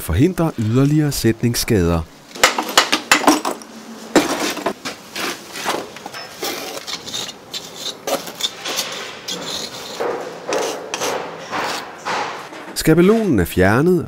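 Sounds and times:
metal tool scraping mortar: 5.2 - 12.5.

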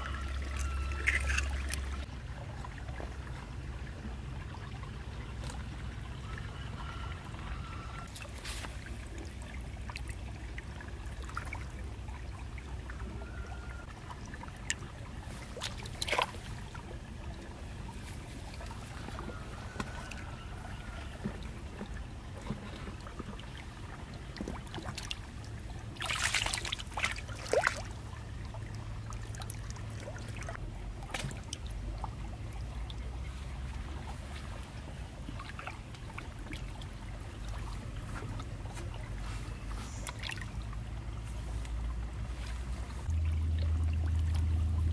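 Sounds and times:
stream water trickling: 0.0 - 44.9
low rumble: 37.7 - 44.9.

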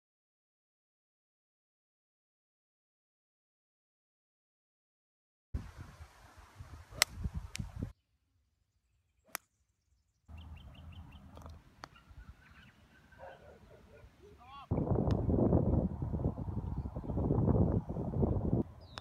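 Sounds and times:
wind rumbling on microphone: 5.6 - 7.9, 14.7 - 19.0
golf club striking ball: 7.0 - 7.3
birds chirping: 8.0 - 15.4, 16.6 - 17.5, 18.2 - 19.0.

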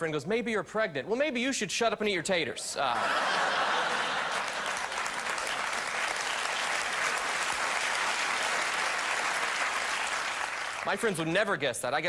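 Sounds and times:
studio audience applauding: 3.0 - 11.3.

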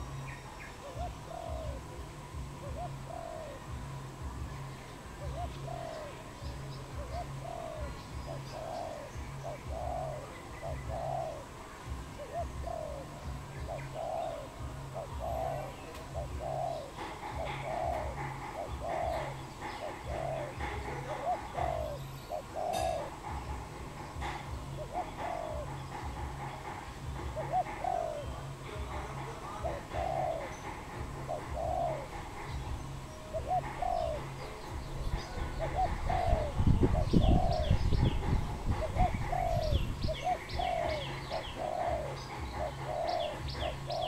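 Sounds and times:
dove cooing: 0.0 - 44.0
low pulsing hum: 0.0 - 44.0.

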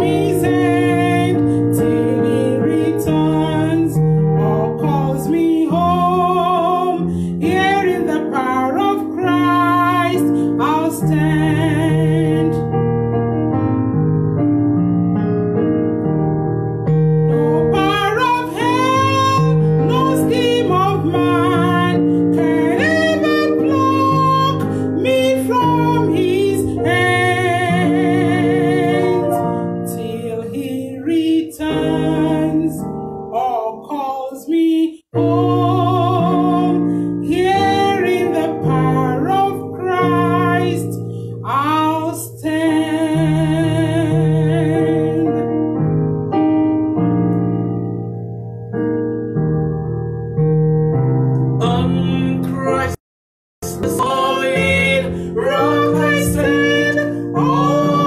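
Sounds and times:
woman singing with vibrato: 0.0 - 12.6, 17.3 - 45.4, 53.6 - 58.0
electronic keyboard chords: 0.0 - 29.8, 44.7 - 53.0, 53.6 - 58.0.

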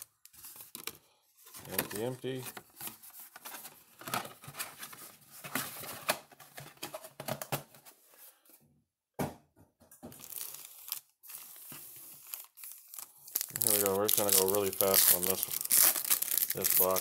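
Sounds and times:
wrappers crinkling and tearing: 10.2 - 17.0.

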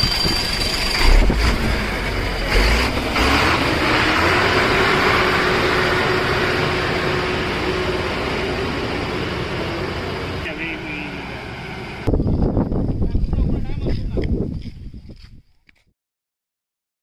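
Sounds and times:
diesel engine droning: 0.0 - 13.0.

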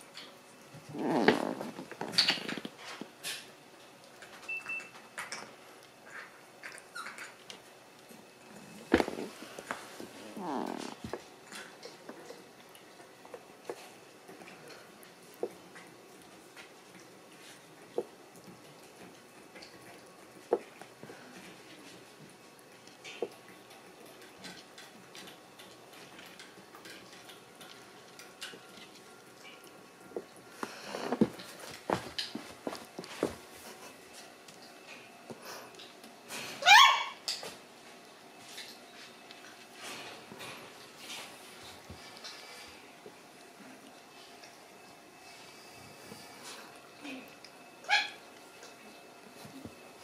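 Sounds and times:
puppy scuffling on wooden floor: 30.1 - 34.6.

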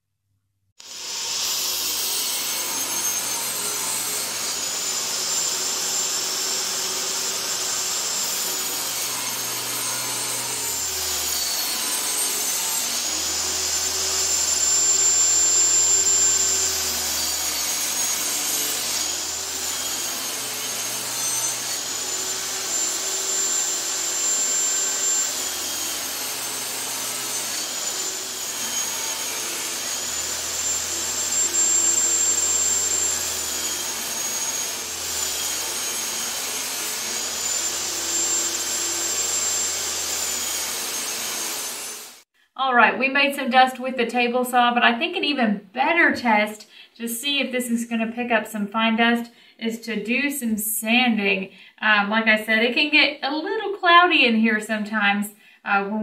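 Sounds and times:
table saw cutting wood: 0.8 - 42.3.

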